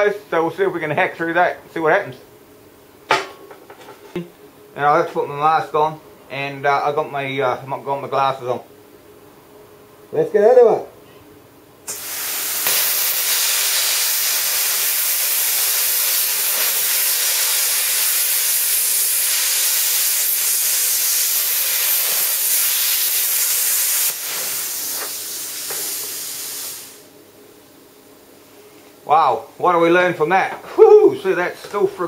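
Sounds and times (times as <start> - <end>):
plasma cutter arc hissing: 11.9 - 27.1.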